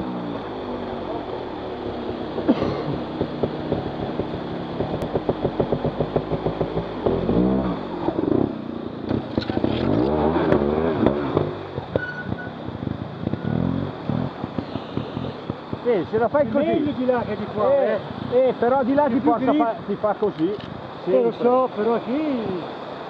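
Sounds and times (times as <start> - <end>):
motorcycle engine revving: 0.0 - 17.4.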